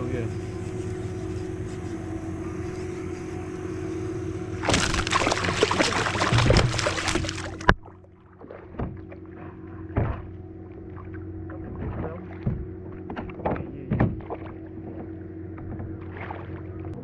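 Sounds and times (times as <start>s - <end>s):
steady low hum: 0.0s - 17.0s
fish thrashing in water: 4.6s - 10.3s
water splashing against kayak: 4.6s - 17.0s.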